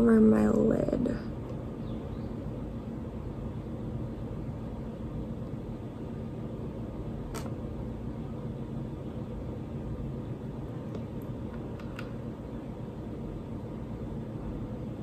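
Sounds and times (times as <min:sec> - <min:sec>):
low background hum: 0:00.0 - 0:15.0
sharp click: 0:07.3 - 0:07.6.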